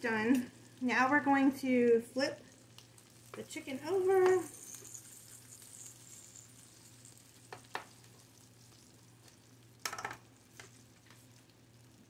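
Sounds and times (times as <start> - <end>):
faint sizzle of pan juices: 0.0 - 12.0
metal tongs clicking on a pan: 2.8 - 4.9
tongs clattering: 4.1 - 8.0.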